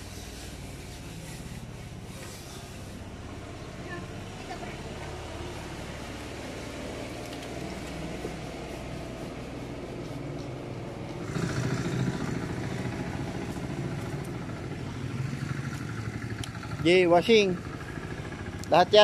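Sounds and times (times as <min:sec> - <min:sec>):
motorcycle engine idling: 0:11.1 - 0:19.0.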